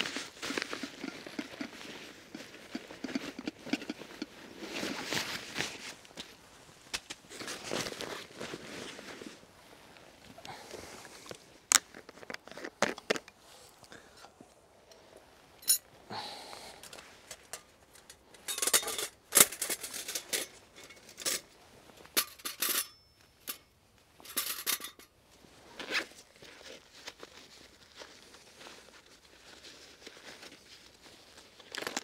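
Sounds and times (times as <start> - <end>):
camping gear clicks and clacks: 0.0 - 6.3, 10.4 - 13.4, 16.7 - 25.1
gear rustling: 0.0 - 6.3.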